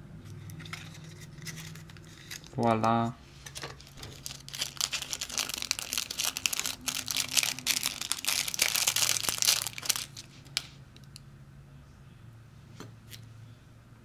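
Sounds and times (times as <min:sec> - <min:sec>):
plastic wrapper crinkling: 0:00.7 - 0:02.7, 0:03.6 - 0:10.8.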